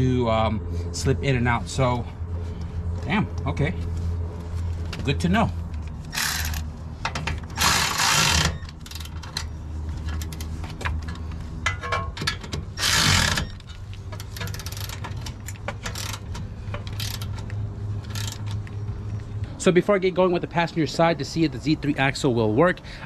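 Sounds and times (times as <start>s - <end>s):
steady low hum: 0.0s - 20.7s
tools and metal parts clinking: 5.7s - 18.8s
hand ratchet clicking: 6.1s - 6.7s, 7.6s - 9.5s, 12.8s - 18.6s.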